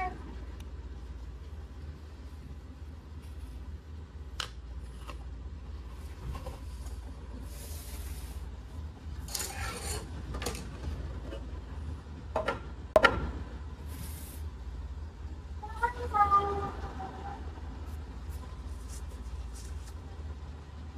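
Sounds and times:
cloth rustling and rubbing: 17.9s - 20.1s.

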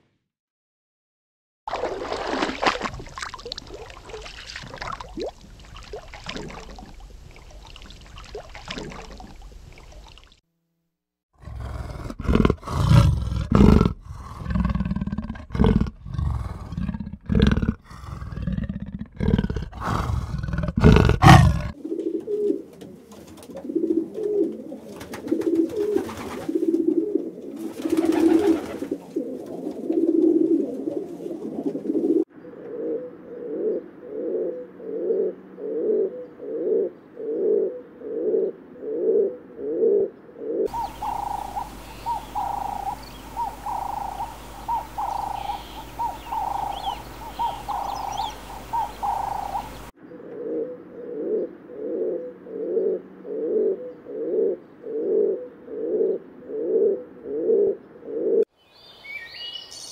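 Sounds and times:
pigeons cooing: 11.5s - 58.5s
steady low hum: 40.7s - 53.3s.

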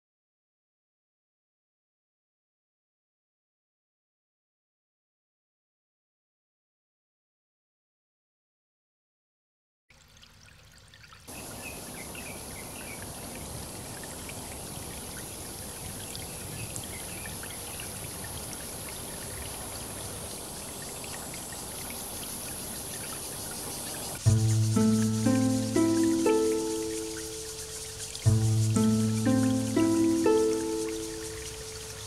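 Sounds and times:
water trickling in canal: 9.9s - 32.0s
short high chirps: 24.3s - 32.0s.

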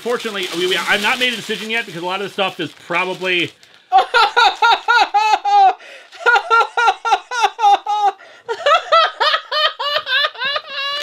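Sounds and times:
high-pitched hearty laughter: 3.9s - 11.0s.

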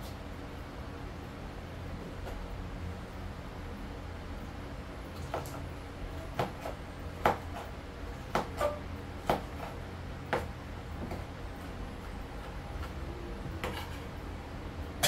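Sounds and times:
knife chopping on cutting board: 6.3s - 7.7s, 8.3s - 11.2s.

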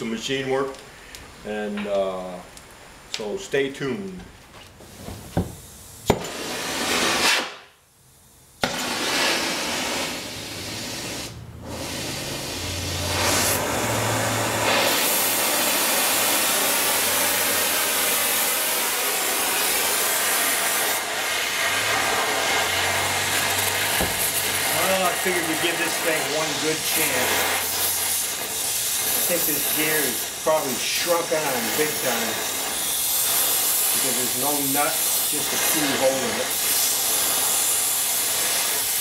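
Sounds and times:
gas torch flame hissing: 4.7s - 39.0s.

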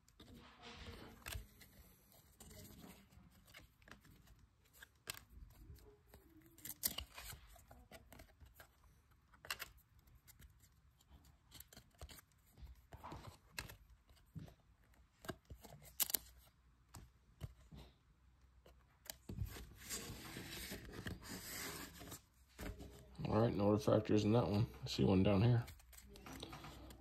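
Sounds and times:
cards rustling: 0.0s - 27.0s
trading cards clicking and sliding: 25.0s - 27.0s.

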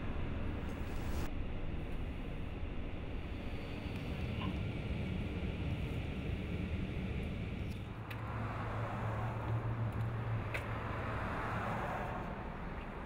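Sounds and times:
car engine and road noise: 0.0s - 13.0s.

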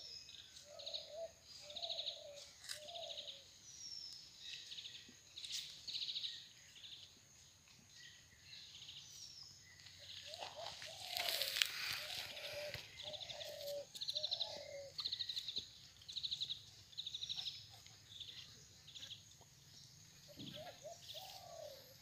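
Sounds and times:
rustle: 0.0s - 22.0s
bird cooing: 0.7s - 3.4s, 10.2s - 15.3s, 20.3s - 22.0s.

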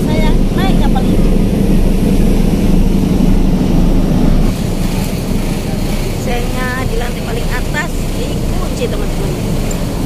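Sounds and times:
ship engine low rumble: 0.0s - 10.0s.

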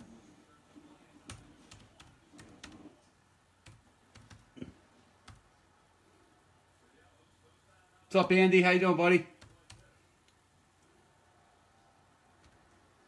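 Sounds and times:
typing on computer keyboard: 1.2s - 2.9s, 3.6s - 4.5s, 5.2s - 5.5s, 12.4s - 12.8s.

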